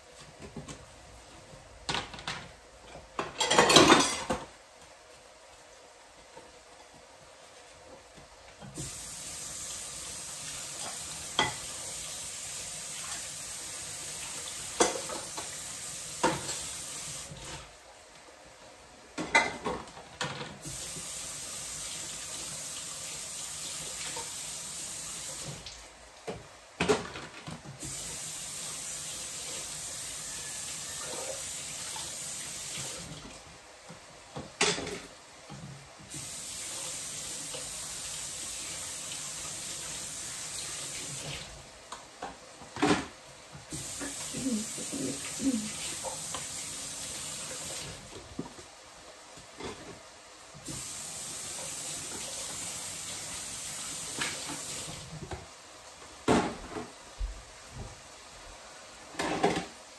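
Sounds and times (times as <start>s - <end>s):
dishes clinking: 3.2s - 4.4s.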